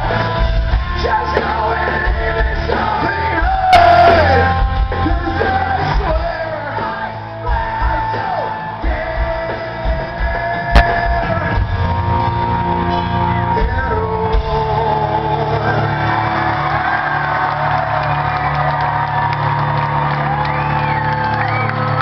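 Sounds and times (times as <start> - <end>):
crowd shouting and whooping: 0.0 - 22.0
drum hits: 9.9 - 12.1.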